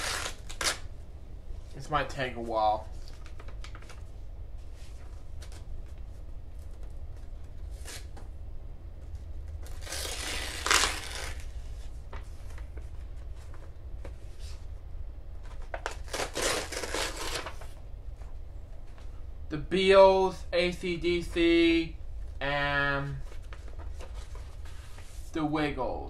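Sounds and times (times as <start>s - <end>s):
paper envelope tearing: 0.0s - 0.8s, 9.6s - 11.6s, 15.7s - 17.7s
paper rustling: 23.1s - 25.2s.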